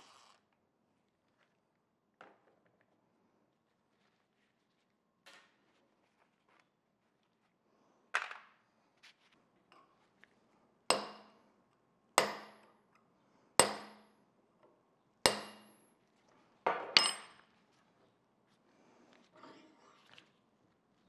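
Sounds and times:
hammer striking steel punch: 0:10.9 - 0:11.4, 0:12.2 - 0:12.7, 0:13.6 - 0:14.1, 0:15.3 - 0:15.8.

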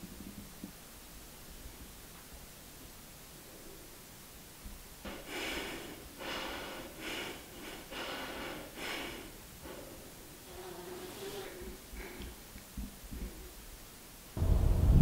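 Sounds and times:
woman breathing heavily through nose: 0:05.0 - 0:12.5.

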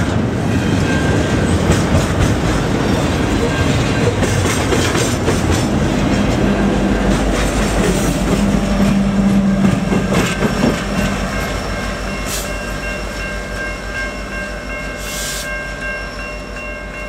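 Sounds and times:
diesel locomotive engine hum: 0:00.0 - 0:17.0
train wheels clicking over rail joints: 0:01.0 - 0:12.8.

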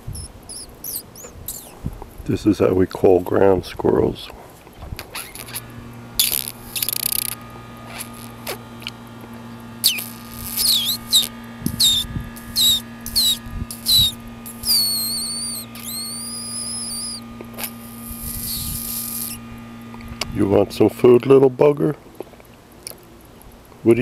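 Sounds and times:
person making squeaky calls: 0:00.0 - 0:01.8, 0:05.0 - 0:05.6, 0:07.9 - 0:08.6, 0:09.8 - 0:17.2.

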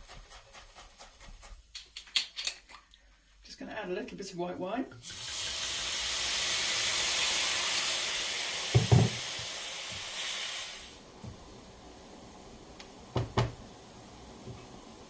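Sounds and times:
wine steaming hiss in hot pan: 0:05.0 - 0:15.0.

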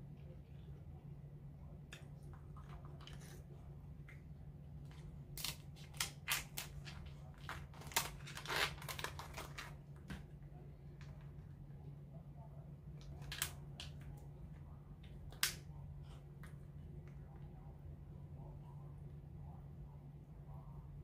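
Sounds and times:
steady low hum: 0:00.0 - 0:21.0
shell crunching and cracking: 0:04.9 - 0:09.7, 0:13.0 - 0:14.1.

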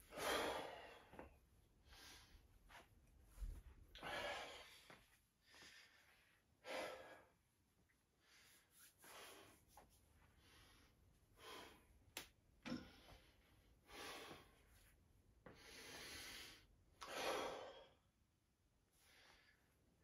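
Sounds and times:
man breathing heavily: 0:00.0 - 0:02.6, 0:03.5 - 0:07.4, 0:10.4 - 0:12.0, 0:12.8 - 0:14.8, 0:15.4 - 0:18.1.

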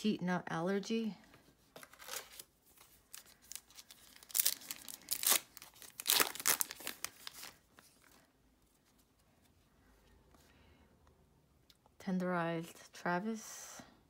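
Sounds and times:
foil wrapper tearing and crinkling: 0:02.0 - 0:07.7.

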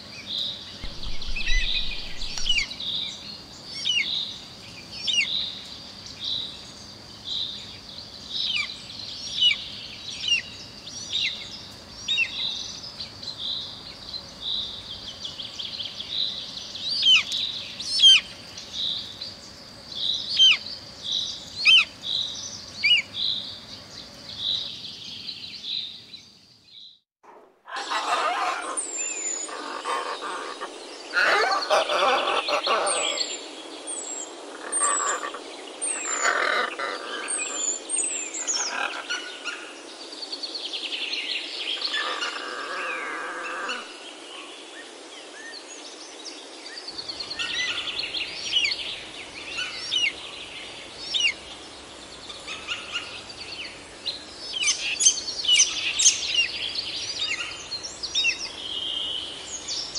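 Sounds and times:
outdoor hiss: 0:00.0 - 0:26.8
small birds chirping: 0:00.1 - 0:27.0, 0:45.3 - 0:59.9
high falling bird whistles: 0:00.8 - 0:02.7.

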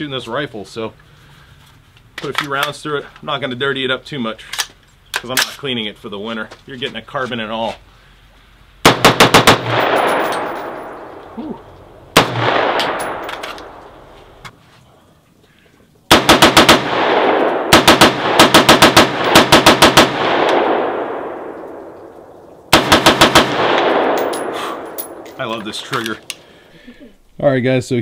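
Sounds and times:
rifle shots with long echo: 0:08.8 - 0:11.4, 0:12.0 - 0:14.2, 0:16.1 - 0:25.3.

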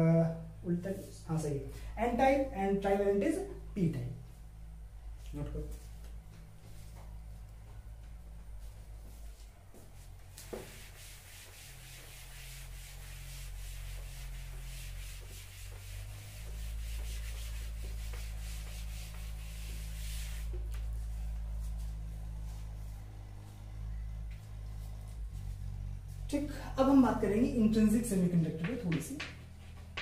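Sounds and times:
eraser scrubbing a chalkboard: 0:08.6 - 0:30.0.

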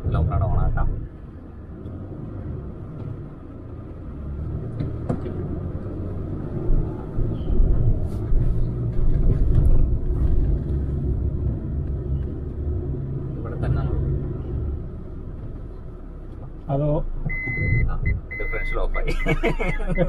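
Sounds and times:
body knocks and rattles: 0:08.3 - 0:11.0.

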